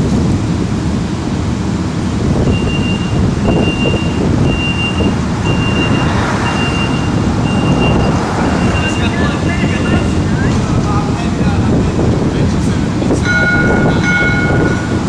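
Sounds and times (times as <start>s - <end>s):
low rumble: 2.1s - 15.0s
door warning beeps: 2.5s - 9.2s.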